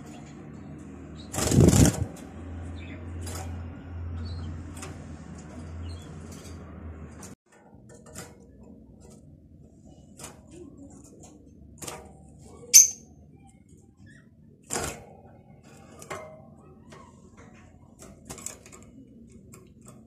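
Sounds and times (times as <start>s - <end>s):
goldfinch chirping: 12.8s - 13.0s.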